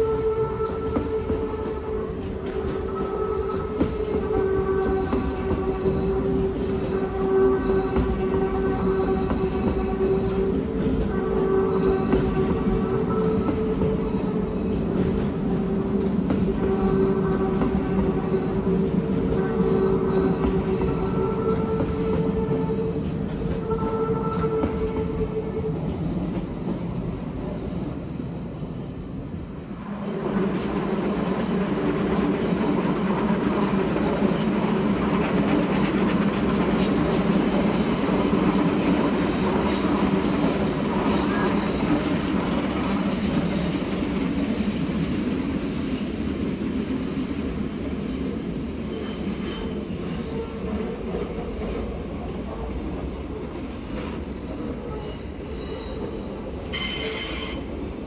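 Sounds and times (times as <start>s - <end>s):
electric train whine: 0.0s - 58.0s
train wheels rumbling on tracks: 0.0s - 58.0s
high-pitched wheel squeal: 36.8s - 50.4s, 56.7s - 57.7s.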